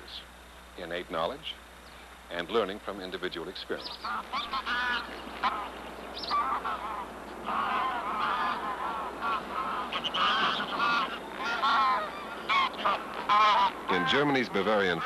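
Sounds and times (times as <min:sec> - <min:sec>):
geese honking: 0:03.8 - 0:15.0.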